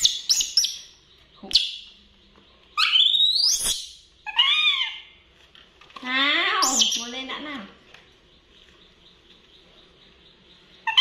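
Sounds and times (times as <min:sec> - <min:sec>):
baby monkeys squealing: 0:00.0 - 0:00.9, 0:02.8 - 0:05.2, 0:06.5 - 0:07.2.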